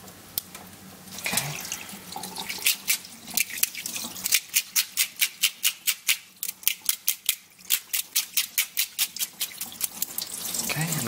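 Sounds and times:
brush scraping fish: 7.0 - 11.0.

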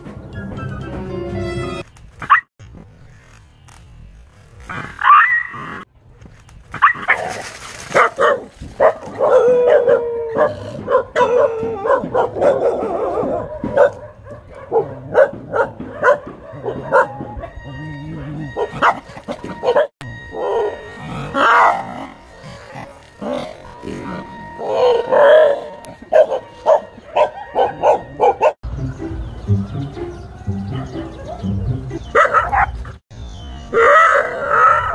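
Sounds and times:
dog barking and yelping: 5.0 - 5.8, 8.0 - 28.6, 30.7 - 33.0, 33.7 - 34.9.

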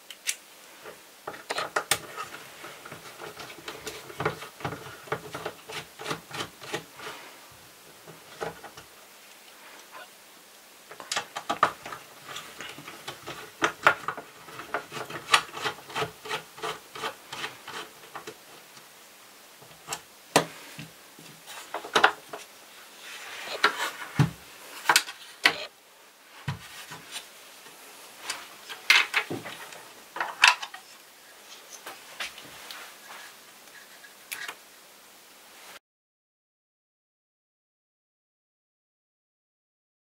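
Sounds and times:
plastic parts knocking and rubbing: 0.8 - 7.3, 7.9 - 8.9, 10.9 - 18.7, 19.6 - 22.5, 28.2 - 30.9.

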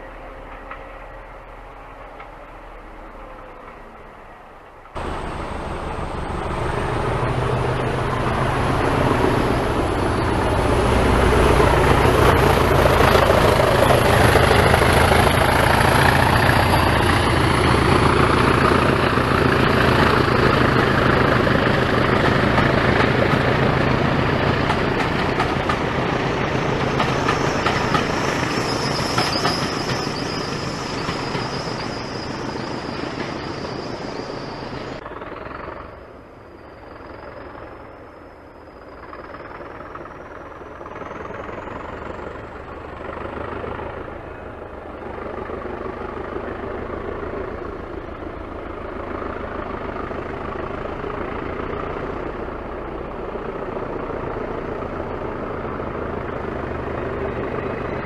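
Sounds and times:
diesel engine hum: 0.0 - 58.0
train rumble: 0.0 - 58.0.

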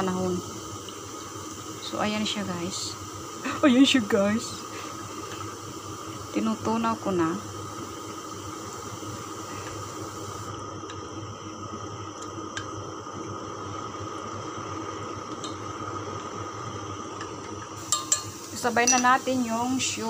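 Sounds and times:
kitchen hum and hiss: 0.0 - 20.0
chopsticks clicking on saucepan: 17.9 - 19.1.

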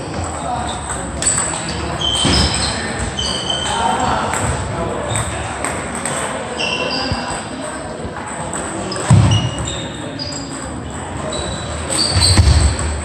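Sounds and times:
shoes squeaking on floor: 0.0 - 4.5, 6.4 - 8.0, 8.7 - 13.0
table tennis balls clicking: 0.1 - 2.2, 5.2 - 6.5.

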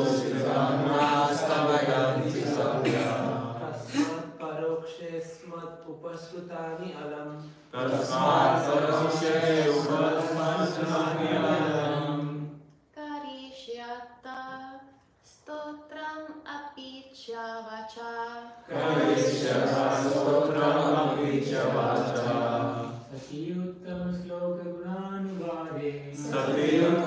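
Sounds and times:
group chanting in unison: 0.0 - 5.0, 6.1 - 12.7, 18.6 - 27.0.

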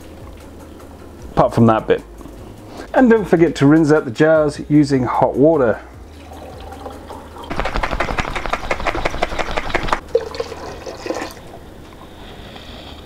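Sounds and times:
water pouring into glass jar: 6.1 - 7.5, 10.0 - 11.7.

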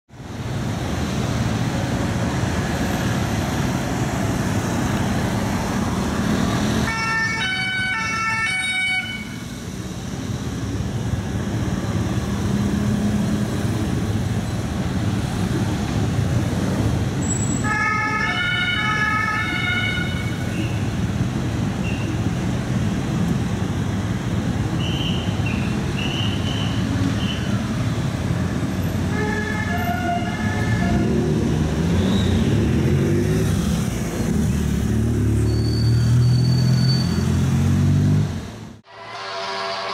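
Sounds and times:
street traffic: 0.1 - 39.9
two-tone siren: 6.9 - 9.5, 17.6 - 20.4.

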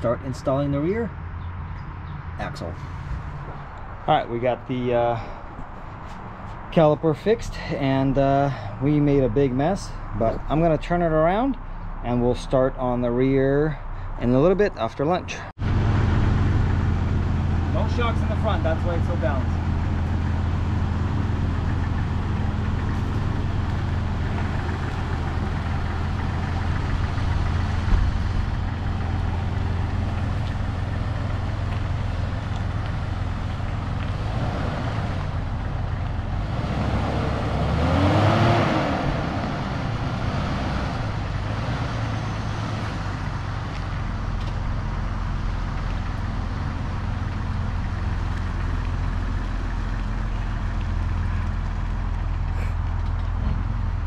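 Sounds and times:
car engine running: 15.6 - 54.0.

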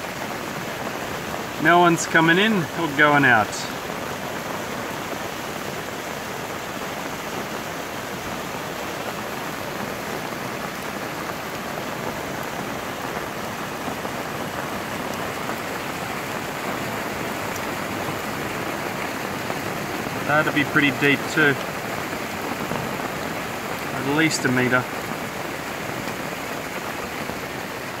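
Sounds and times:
floodwater running: 0.0 - 28.0
steady rain falling: 0.0 - 28.0.

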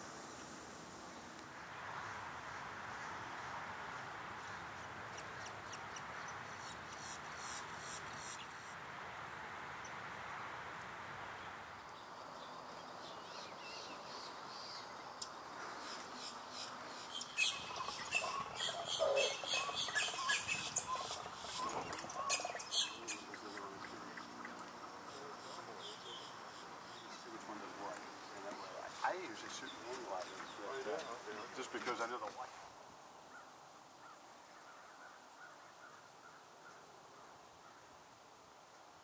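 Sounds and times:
steady background hiss: 0.0 - 39.0
wild birds chirping and calling: 12.4 - 32.2.

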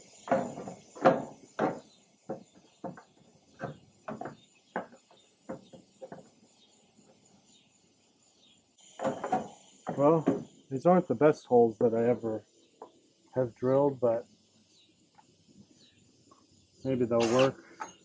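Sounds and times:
metal clunks: 0.2 - 6.4, 8.9 - 10.6.

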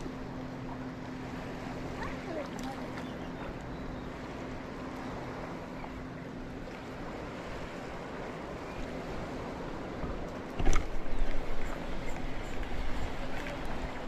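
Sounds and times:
distant motor hum: 0.0 - 14.0
water at shoreline: 0.0 - 14.0
wind: 0.0 - 14.0.

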